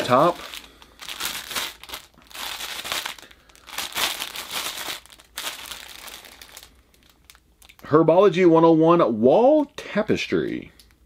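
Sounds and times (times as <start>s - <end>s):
plastic packaging crinkling: 0.0s - 7.9s.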